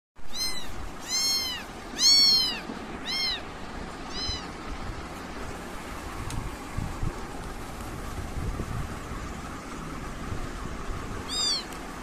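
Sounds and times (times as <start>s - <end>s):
kitten meowing: 0.2s - 3.5s, 4.1s - 4.6s, 11.2s - 11.8s.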